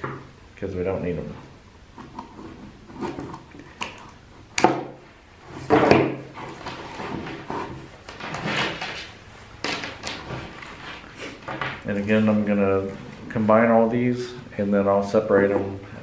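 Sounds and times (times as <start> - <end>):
wires rustling and tapping: 5.7 - 13.5.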